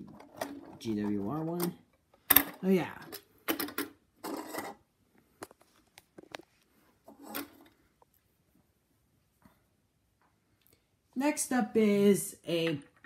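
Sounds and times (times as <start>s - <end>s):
metal track scraping on table: 4.2s - 4.8s.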